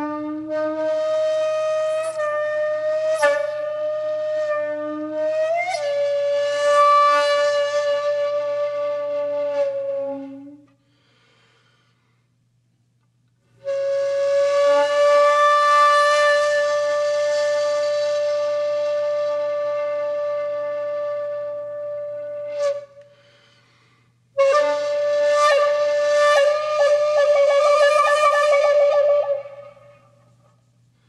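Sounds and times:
wind instrument long notes: 24.4s - 30.2s.

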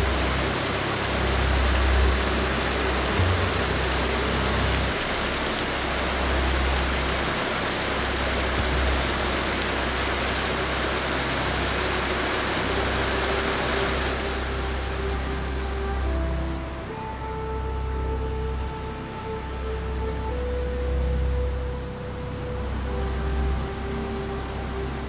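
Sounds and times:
fountain splashing onto water: 0.0s - 15.8s.

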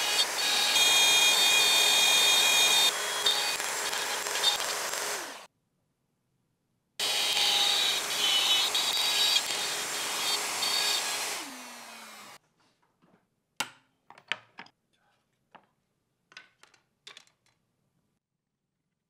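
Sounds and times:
router cutting plywood: 0.0s - 5.5s, 7.0s - 12.4s
router motor winding down: 0.0s - 5.5s, 7.0s - 12.4s
wooden clacks of plywood pieces: 15.5s - 17.6s.

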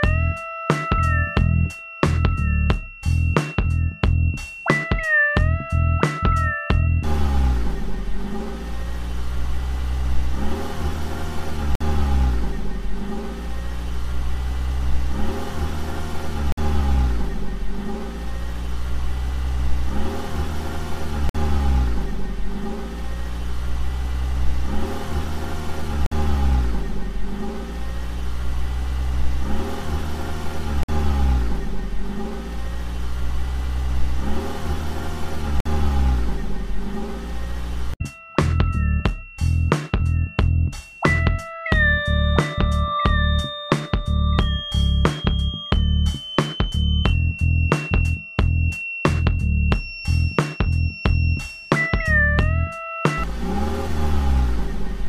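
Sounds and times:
car engine revving: 7.0s - 38.0s, 53.2s - 55.0s.

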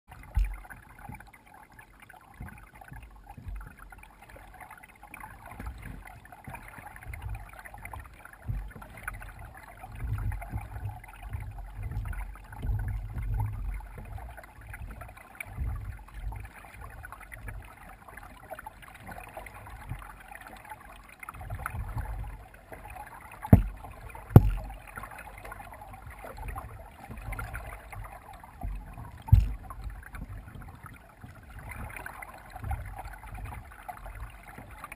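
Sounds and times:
kayak paddling water sounds: 0.1s - 34.9s
sharp knocks: 23.5s - 23.8s, 24.4s - 24.7s, 29.3s - 29.6s.

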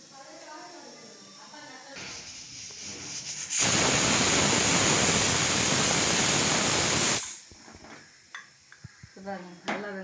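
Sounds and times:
pressure cooker whistle hiss: 2.0s - 7.4s.

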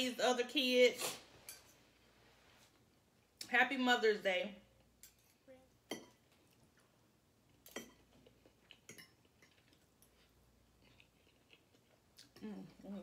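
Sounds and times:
forks clinking against plates: 7.7s - 8.1s.

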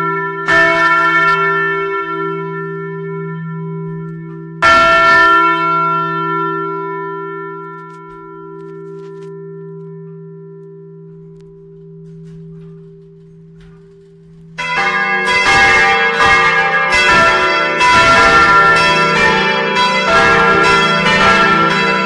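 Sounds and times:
church bell hum: 0.0s - 22.0s
tower bells ringing: 0.0s - 22.0s.

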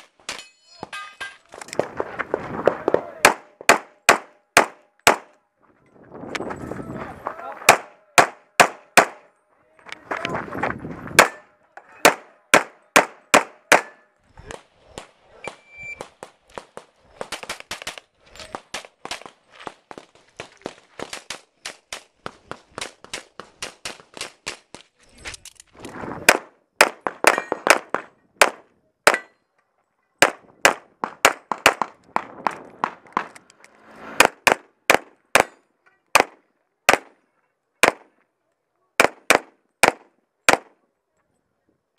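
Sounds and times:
pistol shots: 2.9s - 5.3s, 7.7s - 9.2s, 12.0s - 14.0s, 36.2s - 37.2s, 39.0s - 40.7s.

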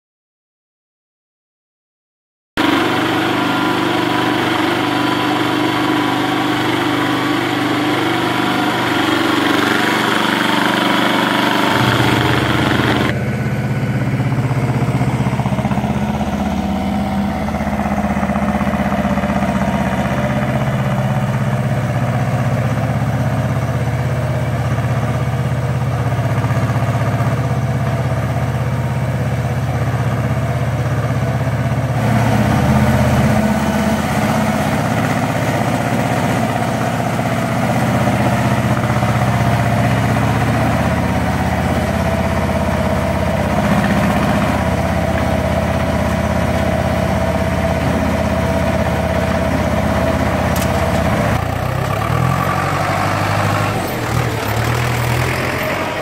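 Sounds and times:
tractor diesel engine idling: 2.6s - 56.0s.

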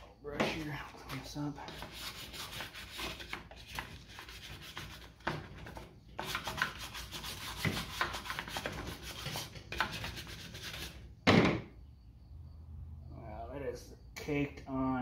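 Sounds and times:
brush scrubbing metal: 0.4s - 11.0s.

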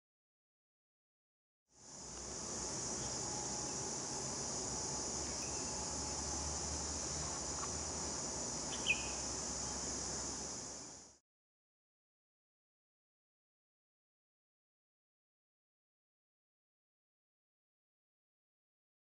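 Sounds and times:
high-pitched insect chorus: 1.8s - 11.2s.

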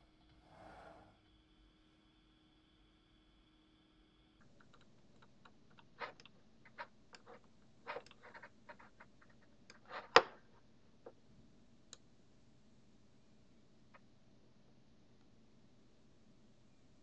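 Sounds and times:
computer mouse clicking: 4.4s - 10.4s.

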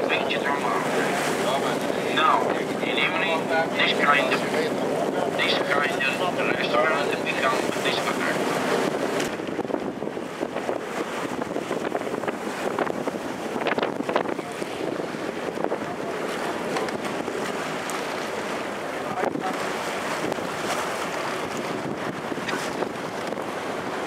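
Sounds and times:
choppy water rushing: 0.0s - 24.0s
wind buffeting microphone: 0.0s - 24.0s.

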